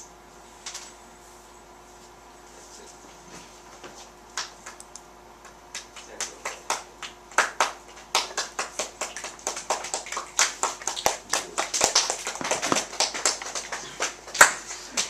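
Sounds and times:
audience clapping: 5.5s - 15.0s.

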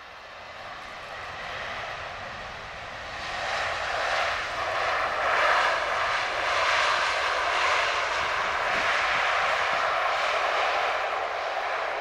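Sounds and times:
jet engines in reverse thrust: 0.0s - 12.0s.

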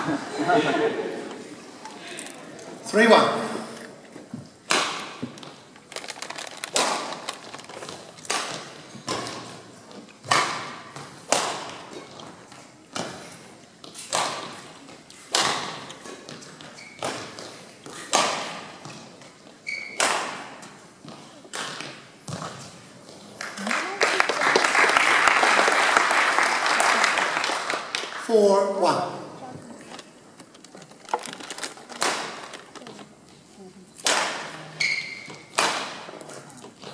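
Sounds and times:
rackets hitting shuttlecock: 4.6s - 5.6s, 6.7s - 7.3s, 7.9s - 13.2s, 13.9s - 22.7s, 32.0s - 32.7s, 34.0s - 36.3s.

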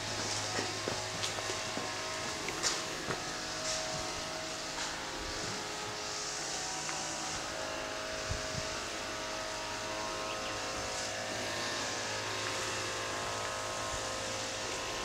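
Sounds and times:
constant hiss: 0.0s - 15.0s
low mechanical hum: 0.0s - 15.0s
soft footfalls: 0.2s - 4.1s.

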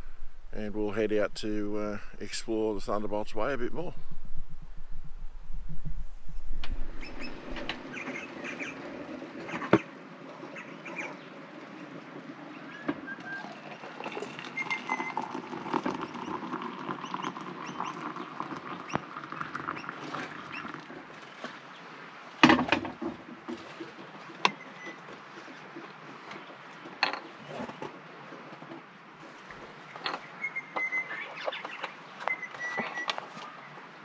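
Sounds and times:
water pouring into metal mugs: 13.4s - 21.5s.

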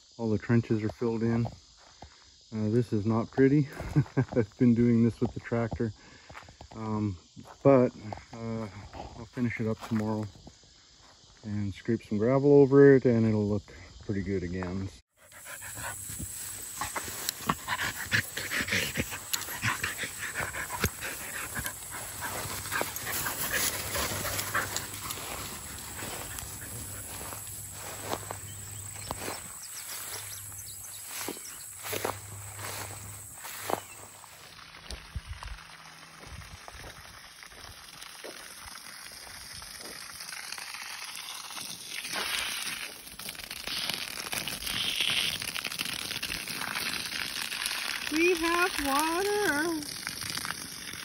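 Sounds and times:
hose water spray hissing: 15.1s - 51.0s
dog panting: 15.2s - 16.1s, 16.7s - 27.1s
grass rustling and crackling: 15.2s - 51.0s.

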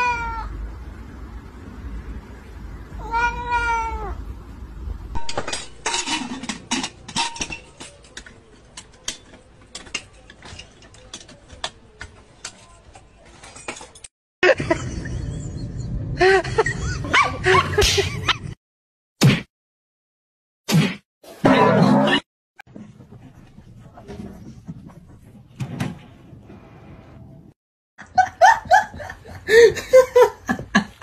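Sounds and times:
cat meowing: 0.0s - 0.5s, 3.0s - 4.2s.

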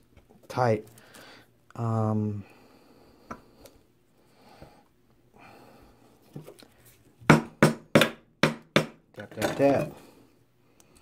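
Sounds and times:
hammer tapping pins into wood: 7.3s - 9.8s.

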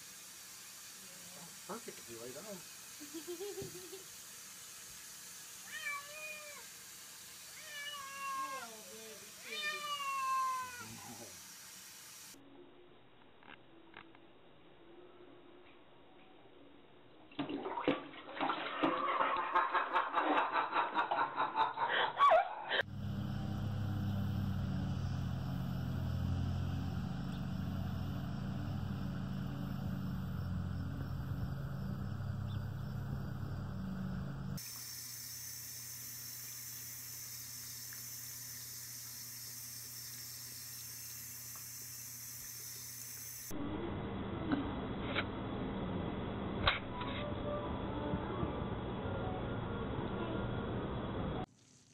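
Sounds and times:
tap water running: 0.0s - 12.4s, 17.4s - 19.8s, 34.6s - 43.5s
kitten splashing in water: 17.4s - 19.4s
steady low hum: 22.8s - 51.9s.

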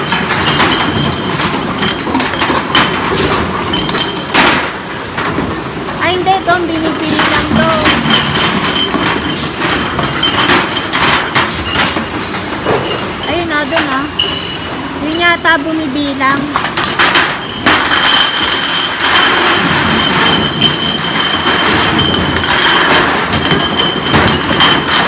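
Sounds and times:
cartons knocking on metal counter: 0.0s - 5.5s, 16.5s - 25.0s
glass bottles clinking: 0.0s - 25.0s.

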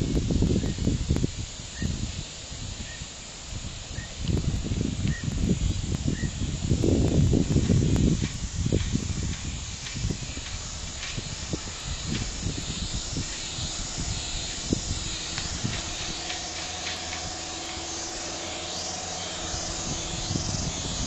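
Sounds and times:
faint steady hum: 0.0s - 21.0s
outdoor hiss: 0.0s - 21.0s
wind rumbling on microphone: 0.0s - 21.0s.

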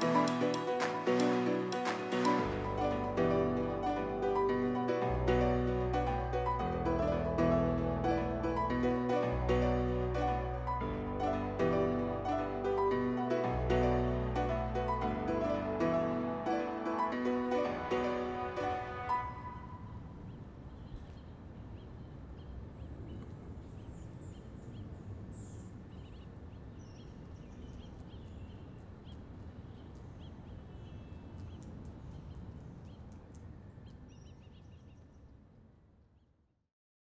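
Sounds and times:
low city rumble: 0.0s - 36.4s
birds chirping: 19.4s - 35.4s.

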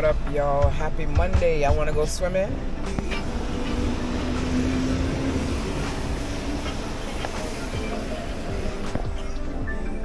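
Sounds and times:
low road rumble: 0.0s - 10.0s
tyres hissing on wet road: 3.0s - 9.2s.

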